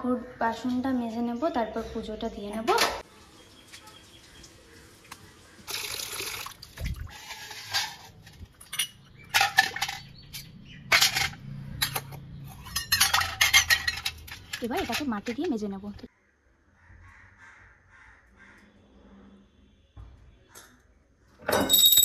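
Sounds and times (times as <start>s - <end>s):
brass vessels clinking in water: 10.9s - 15.3s.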